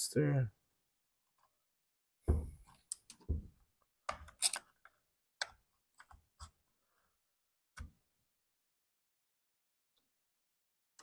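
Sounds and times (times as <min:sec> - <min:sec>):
plastic and metal parts clicking: 0:04.1 - 0:05.6.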